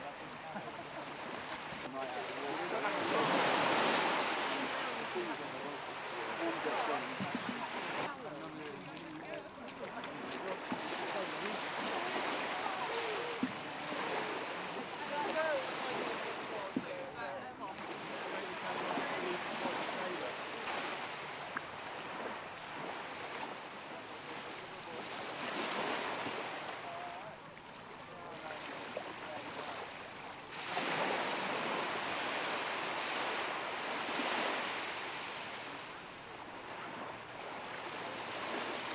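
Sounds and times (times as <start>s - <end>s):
water splashing against boat hull: 0.0s - 23.8s.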